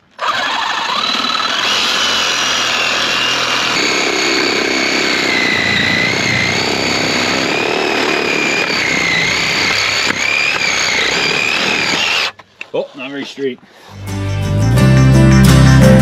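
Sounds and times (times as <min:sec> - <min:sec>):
machine running with high whine: 0:02.8 - 0:12.3.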